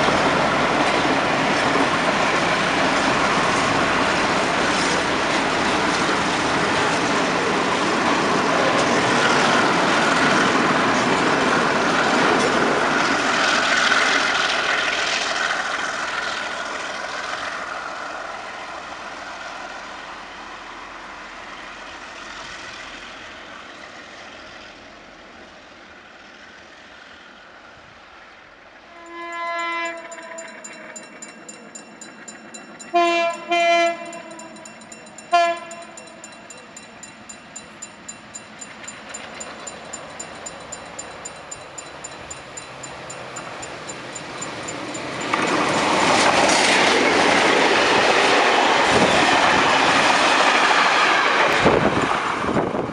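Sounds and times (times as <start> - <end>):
even clicking of train wheels: 0.0 - 18.3, 29.0 - 52.9
freight train rolling: 0.0 - 25.5, 28.7 - 52.9
diesel locomotive horn blasts: 28.9 - 30.9, 32.9 - 34.6, 35.3 - 36.2.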